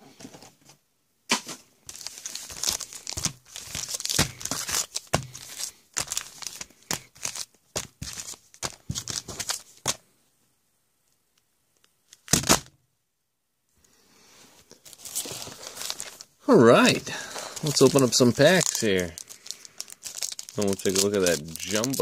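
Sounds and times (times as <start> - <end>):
foil wrappers crinkling: 1.9 - 10.0, 14.7 - 22.0.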